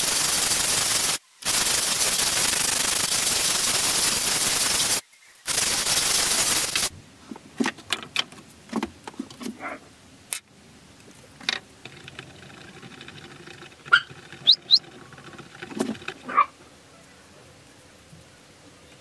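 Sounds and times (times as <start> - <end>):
stick stirring epoxy: 11.8 - 16.3
stick squeaking on plastic: 13.7 - 16.2.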